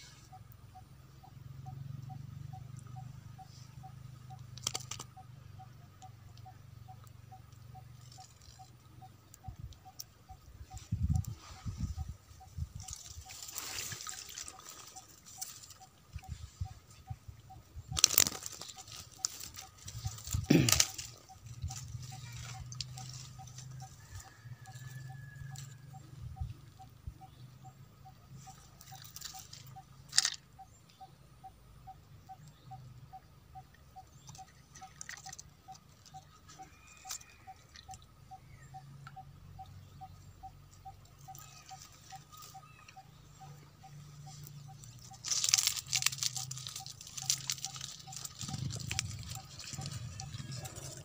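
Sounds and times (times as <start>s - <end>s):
rustling leaves and crackling: 3.5s - 5.1s, 7.4s - 26.2s, 28.3s - 30.8s, 40.6s - 51.0s.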